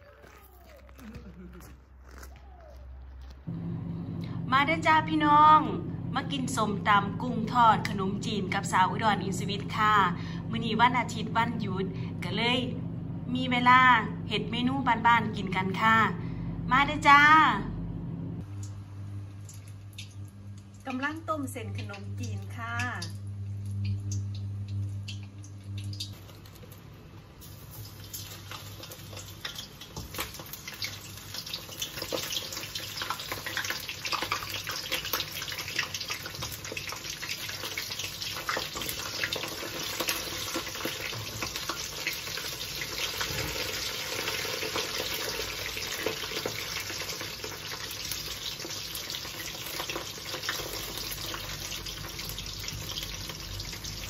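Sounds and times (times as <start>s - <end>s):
steady low hum: 3.4s - 26.2s
shrimp deep-frying in oil: 18.4s - 54.0s.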